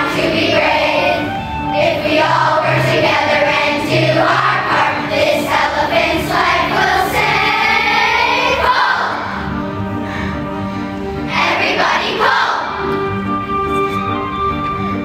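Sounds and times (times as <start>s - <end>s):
children's choir singing: 0.0s - 9.6s, 11.2s - 13.0s.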